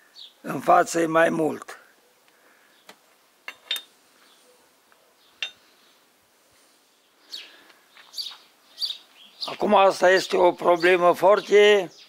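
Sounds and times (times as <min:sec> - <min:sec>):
light metallic clinks: 0:03.5 - 0:03.9, 0:05.4 - 0:05.6.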